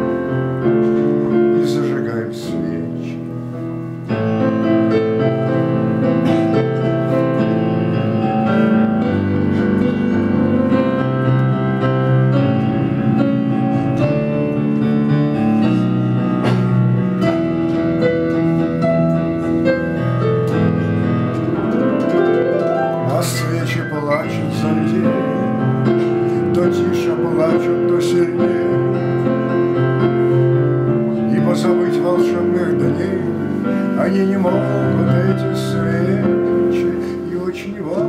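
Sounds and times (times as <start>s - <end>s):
solo piano: 0.0s - 38.0s.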